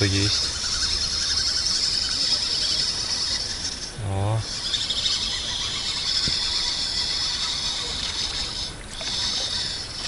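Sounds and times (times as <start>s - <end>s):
insects droning: 0.0s - 10.0s
low hum-like vocal sound: 0.0s - 10.0s.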